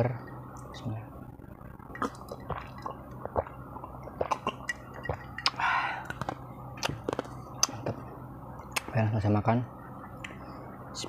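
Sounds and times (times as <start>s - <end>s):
person gulping and swallowing: 1.8s - 8.0s
breathy exhale: 5.6s - 6.1s.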